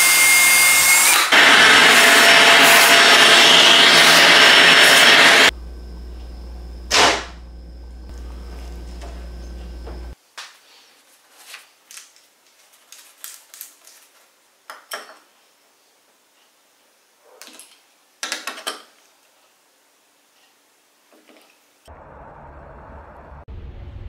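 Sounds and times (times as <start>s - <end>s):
steady low hum: 5.3s - 10.2s.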